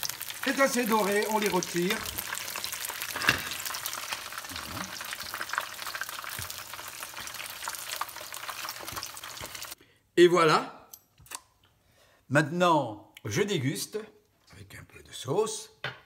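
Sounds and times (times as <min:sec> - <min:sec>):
food deep-frying in oil: 0:00.0 - 0:09.8
oil popping: 0:00.0 - 0:09.8.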